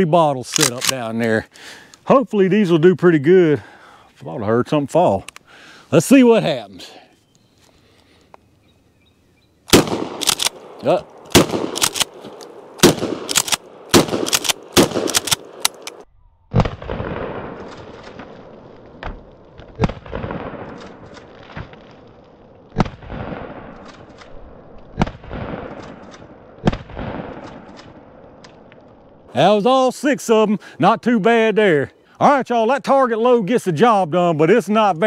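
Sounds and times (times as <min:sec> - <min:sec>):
shotgun shots echoing: 0:09.7 - 0:18.5, 0:25.0 - 0:28.1.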